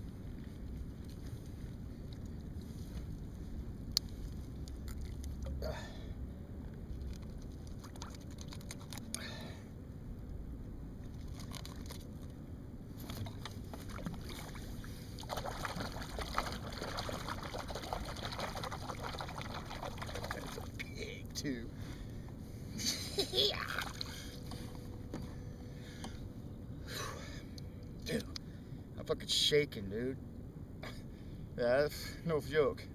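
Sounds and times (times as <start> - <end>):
water lapping and trickling: 0.0 - 6.0, 6.8 - 9.6, 11.0 - 21.0, 23.3 - 26.2
water splashing and dripping: 7.1 - 9.0, 13.0 - 20.8.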